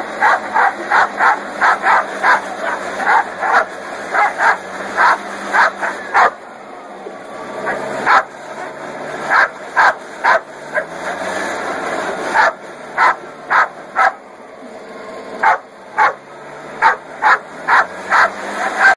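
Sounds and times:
blower rushing and humming: 0:00.0 - 0:18.9
dog barking: 0:00.2 - 0:06.4, 0:07.7 - 0:08.3, 0:09.3 - 0:11.0, 0:12.4 - 0:14.2, 0:15.4 - 0:16.2, 0:16.8 - 0:18.9.

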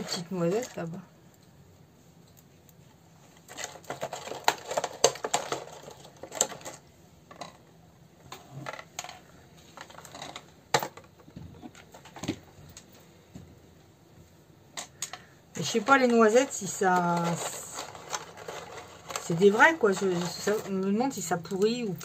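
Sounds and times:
nuts clattering in a plastic bag: 0:03.5 - 0:07.6, 0:15.0 - 0:22.0.

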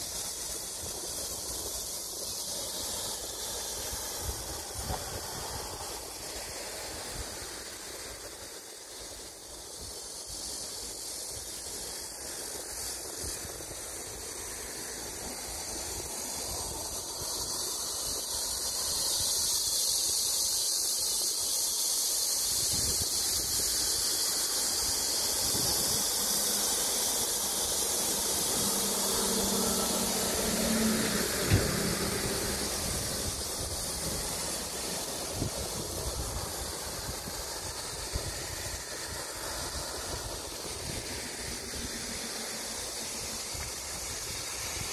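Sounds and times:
steady high hiss: 0:00.0 - 0:44.9
road traffic passing: 0:24.3 - 0:44.8
vehicle engine hum: 0:25.4 - 0:44.7.

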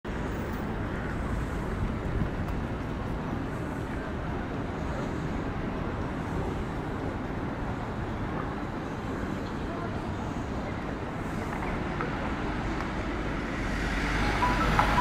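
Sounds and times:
city street noise: 0:00.0 - 0:15.0.

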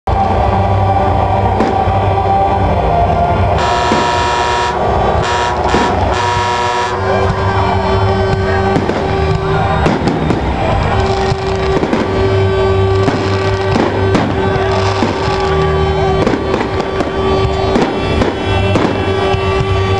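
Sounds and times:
loud music with sustained chords: 0:00.1 - 0:19.9
fireworks bangs and crackles: 0:01.1 - 0:19.9.

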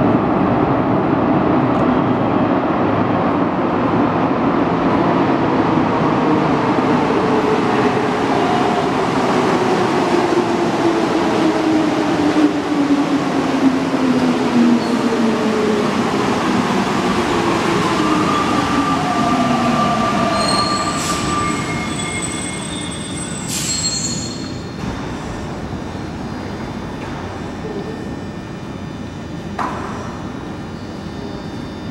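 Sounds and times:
high-pitched squeals: 0:18.2 - 0:24.8.

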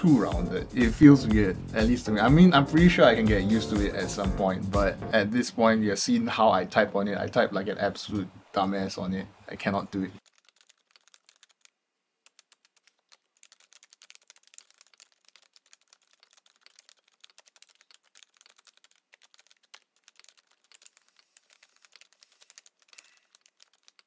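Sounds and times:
rapid keyboard typing: 0:10.2 - 0:24.0.

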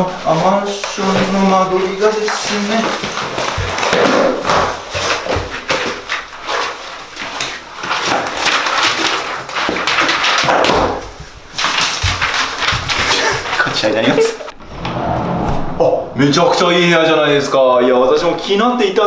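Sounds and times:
binder pages rustling and flapping: 0:00.0 - 0:14.4
binder knocking and thumping on floor: 0:00.9 - 0:06.1.

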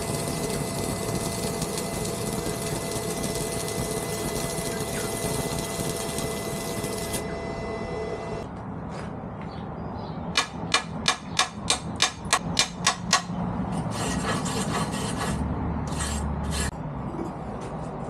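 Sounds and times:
chipping hammer striking metal: 0:10.4 - 0:13.3
rasping scrapes over weld: 0:13.7 - 0:16.7.

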